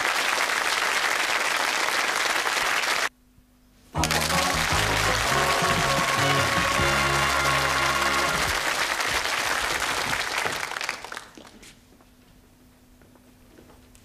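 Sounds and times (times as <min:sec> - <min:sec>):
studio audience applauding: 0:00.0 - 0:03.1, 0:04.0 - 0:11.5
title music: 0:04.0 - 0:08.7.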